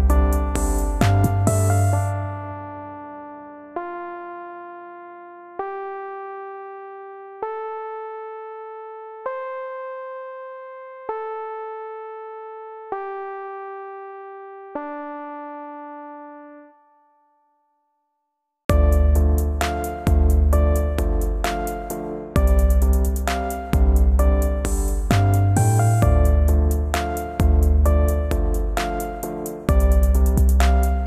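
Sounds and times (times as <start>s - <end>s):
slow sparse keyboard notes: 0.0s - 6.4s, 18.7s - 31.0s.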